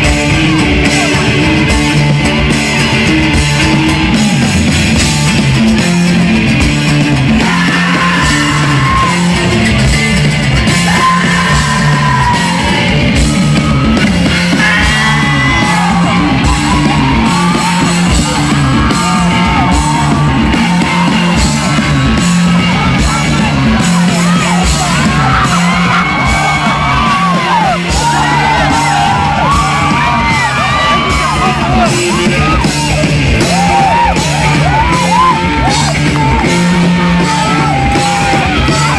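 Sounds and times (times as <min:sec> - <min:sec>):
loud rock music: 0:00.0 - 0:38.9.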